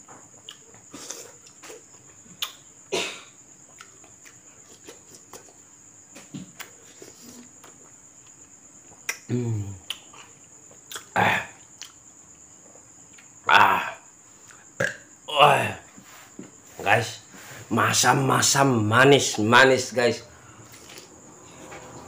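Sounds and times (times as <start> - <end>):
high insect trill: 0.0 - 22.0
soft wet chewing: 3.6 - 5.6
man grunting: 9.3 - 9.8, 13.5 - 14.0.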